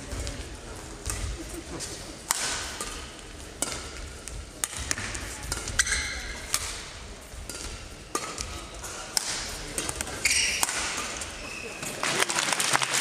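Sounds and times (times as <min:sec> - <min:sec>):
rackets striking shuttlecock: 0:01.0 - 0:01.4, 0:02.2 - 0:12.1
shoes squeaking on floor: 0:10.2 - 0:10.7, 0:11.4 - 0:12.0.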